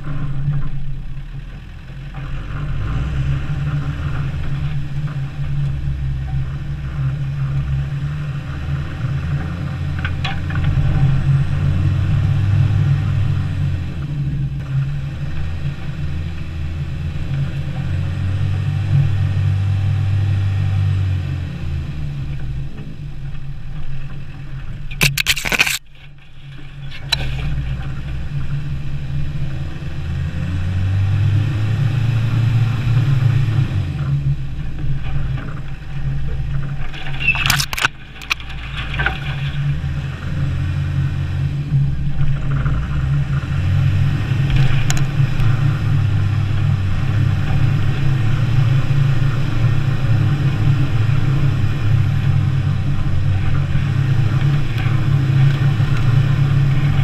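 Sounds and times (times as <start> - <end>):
engine running under load: 0.0 - 57.0
sharp knocks or scrapes: 25.0 - 27.7, 36.5 - 39.7.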